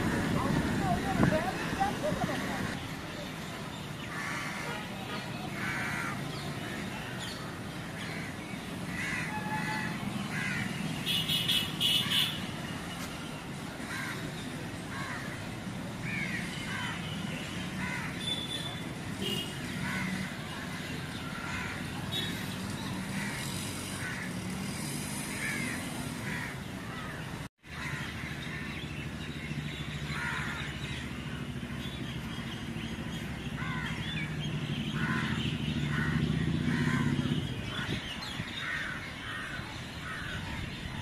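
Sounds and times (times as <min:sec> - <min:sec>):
birds calling: 0:00.0 - 0:41.0
low hum of road traffic: 0:00.0 - 0:41.0
crows cawing: 0:04.1 - 0:04.8, 0:05.5 - 0:06.8, 0:08.0 - 0:10.9, 0:13.8 - 0:14.2, 0:14.9 - 0:15.4, 0:16.0 - 0:17.0, 0:17.8 - 0:18.2, 0:19.8 - 0:22.0, 0:23.2 - 0:24.5, 0:25.3 - 0:28.8, 0:30.1 - 0:30.8, 0:33.6 - 0:34.2, 0:35.0 - 0:40.5.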